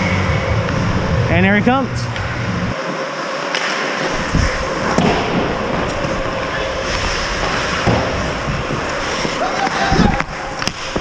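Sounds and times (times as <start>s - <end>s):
skate blades scraping ice: 2.9s - 11.0s
hockey sticks and puck knocking: 8.8s - 11.0s.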